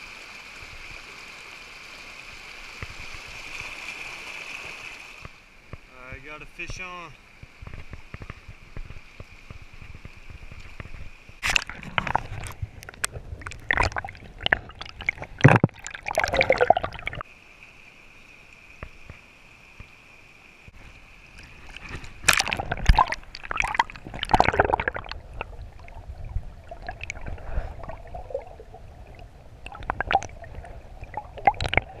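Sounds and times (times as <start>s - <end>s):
water splashing and sloshing: 0.0s - 5.9s, 6.8s - 17.3s, 20.7s - 32.0s
water gurgling: 8.8s - 17.3s, 21.1s - 32.0s.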